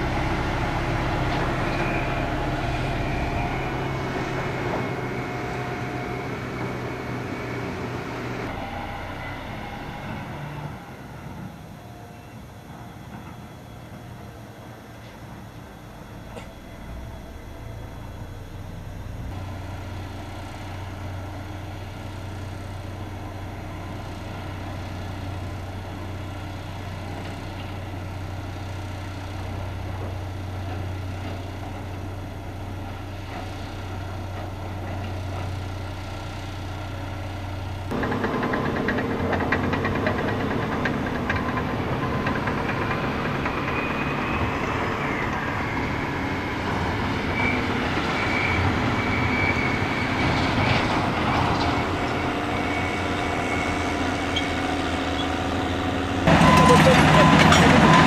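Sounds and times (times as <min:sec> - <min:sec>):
high wavering whine: 0:00.0 - 0:12.6
diesel engine idling: 0:00.0 - 0:58.0
diesel engine running close: 0:00.0 - 0:58.0.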